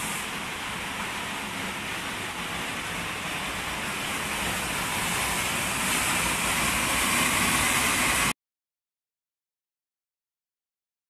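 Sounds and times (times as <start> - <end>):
waterfall rushing: 0.0 - 8.4.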